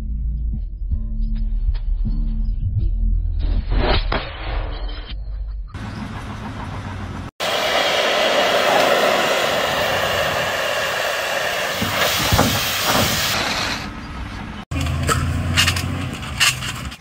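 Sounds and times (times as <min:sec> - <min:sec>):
cutting torch hissing: 0:07.4 - 0:13.9.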